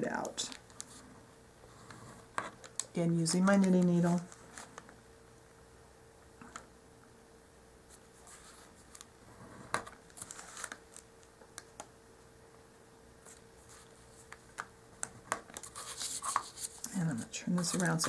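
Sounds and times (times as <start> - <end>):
needle scratching paper: 15.6 - 18.0.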